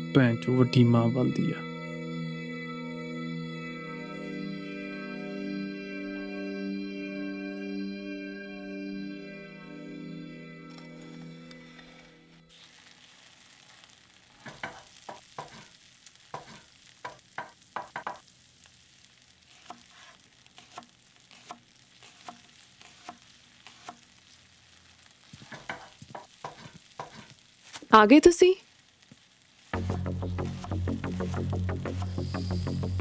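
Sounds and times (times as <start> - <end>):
faint food frying sizzle: 12.5 - 33.0
knife chopping on plastic board: 25.5 - 27.2.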